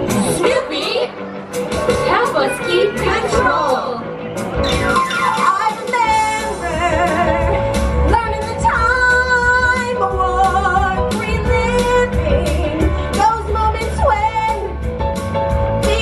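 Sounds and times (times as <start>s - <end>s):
pop song with female vocals: 5.1s - 16.0s.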